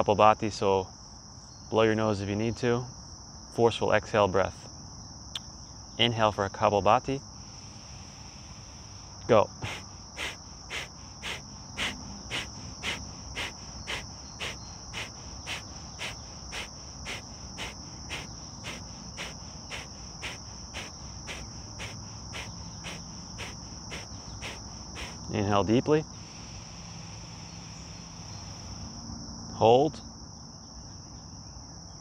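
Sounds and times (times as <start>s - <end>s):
high insect trill: 0.0s - 32.0s
forceful nasal exhales: 7.4s - 25.3s, 26.1s - 29.0s.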